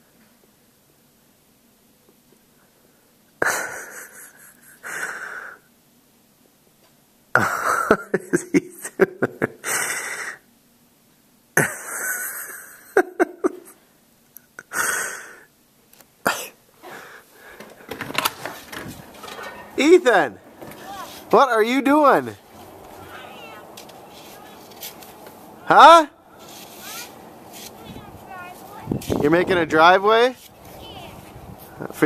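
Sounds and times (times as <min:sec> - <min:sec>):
person coughing: 0:16.2 - 0:16.6.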